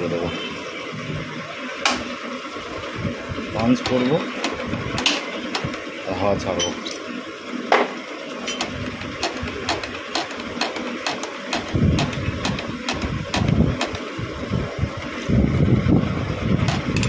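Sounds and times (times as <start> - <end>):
engine running unevenly: 8.5 - 14.9.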